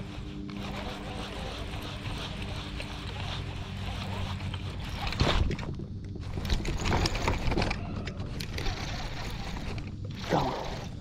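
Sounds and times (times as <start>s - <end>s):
clicks and rustles: 4.3s - 10.2s.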